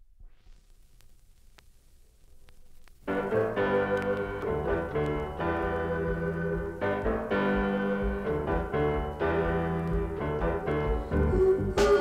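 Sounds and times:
pop music sustained chords: 0:03.1 - 0:12.0.

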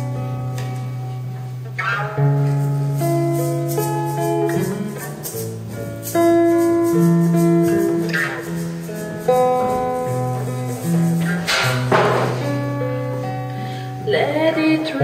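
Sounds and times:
held chords: 0:00.0 - 0:15.0
plucked guitar notes: 0:00.0 - 0:15.0
shaker: 0:02.4 - 0:13.3.

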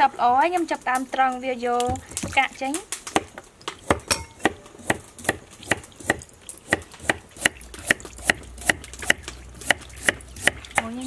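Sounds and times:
knife slicing carrot on wooden board: 0:03.2 - 0:11.0.

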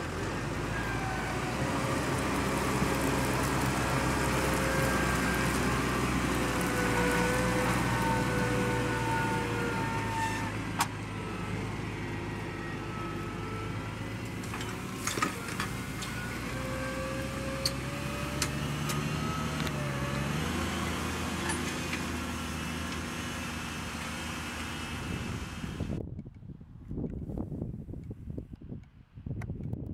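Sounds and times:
tractor diesel engine under load: 0:00.0 - 0:26.0.

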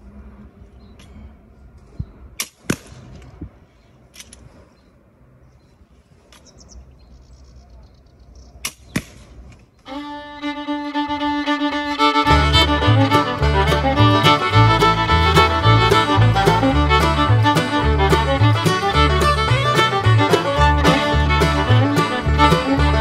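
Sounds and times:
fiddle music: 0:09.8 - 0:23.0.

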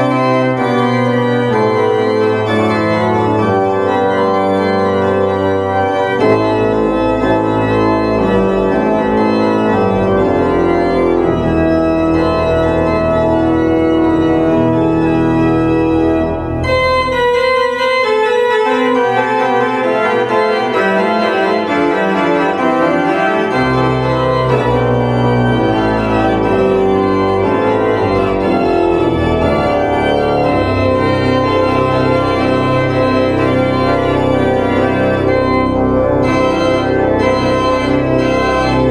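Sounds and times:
organ playing sustained chords: 0:00.0 - 0:38.9.

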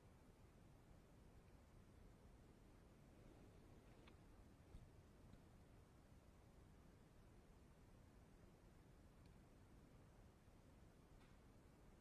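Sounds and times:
faint click: 0:03.8 - 0:05.5, 0:09.2 - 0:09.4, 0:11.2 - 0:11.5.

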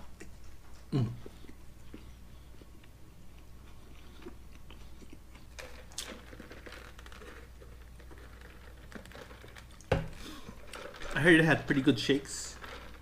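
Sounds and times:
person chewing food: 0:00.0 - 0:11.0
crunch: 0:00.1 - 0:13.0.

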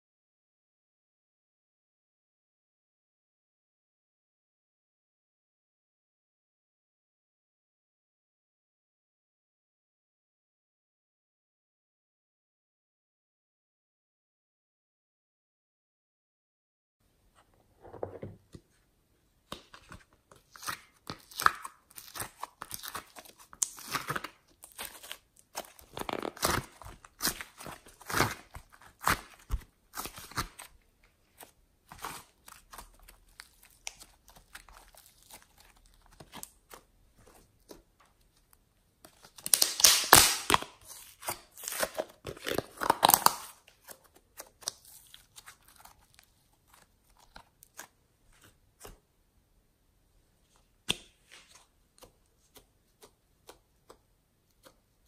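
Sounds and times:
hands squeezing clay and slime: 0:19.4 - 0:49.2, 0:50.5 - 0:55.0
sticky crackling and tearing: 0:21.2 - 0:30.7, 0:39.4 - 0:47.9.

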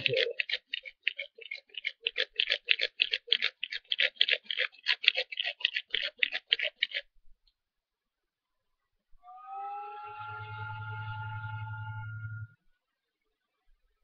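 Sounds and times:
bow drill spindle scraping: 0:00.0 - 0:07.1.

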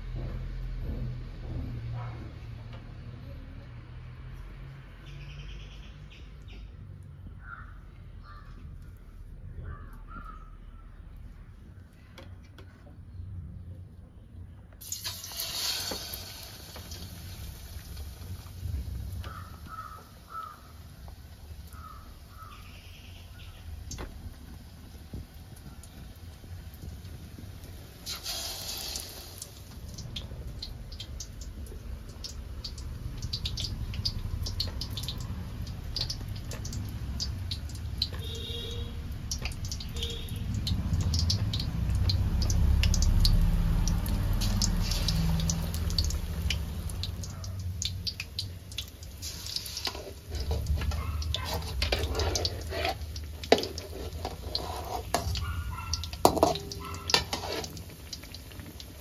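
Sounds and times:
water drips: 0:16.1 - 0:28.2, 0:28.8 - 0:59.0.

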